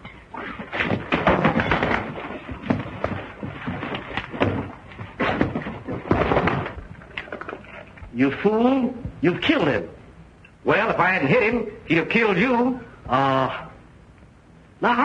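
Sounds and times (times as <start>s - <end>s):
scuffle thumps and knocks: 0.0s - 7.8s.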